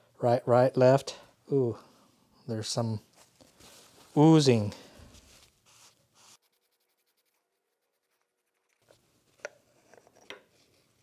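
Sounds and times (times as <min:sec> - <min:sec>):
faint rubbing with paper towel: 0:03.1 - 0:07.4.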